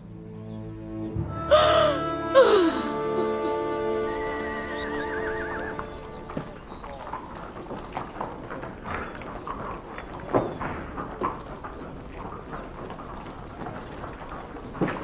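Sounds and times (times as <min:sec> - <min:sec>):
footsteps on stone paving: 0:03.3 - 0:15.0.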